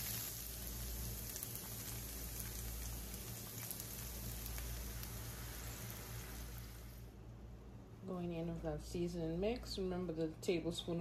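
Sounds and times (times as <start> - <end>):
vegetables sizzling in a skillet: 0.0 - 7.1.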